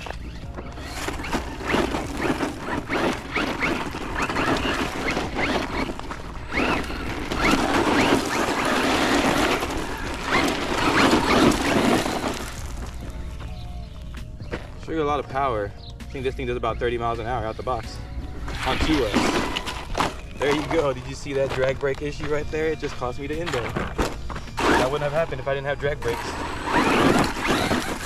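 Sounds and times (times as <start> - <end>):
electric motor whining: 0.0 - 14.1, 24.5 - 28.0
tyres scrabbling on ground: 0.0 - 28.0.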